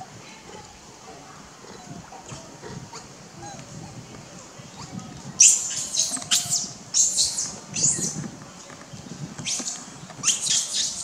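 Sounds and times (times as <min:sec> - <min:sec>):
baby monkey screeching: 0:05.4 - 0:08.2, 0:09.5 - 0:11.0.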